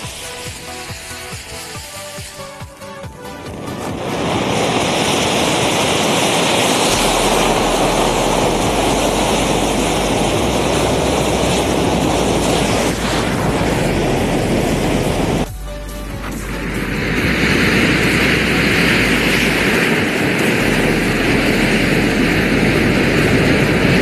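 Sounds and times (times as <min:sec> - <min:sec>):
burning matches rushing hiss: 0:00.0 - 0:15.5, 0:16.1 - 0:24.0.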